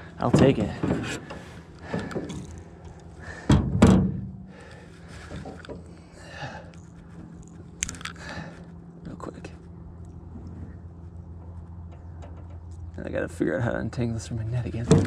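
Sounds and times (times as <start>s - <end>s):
faint low hum: 0.0s - 15.0s
heavy thunks on metal hull: 3.3s - 4.5s.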